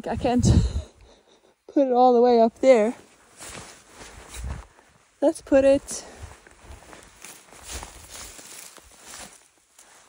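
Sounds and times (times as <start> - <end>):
jacket rustling: 2.8 - 5.0, 6.3 - 10.0.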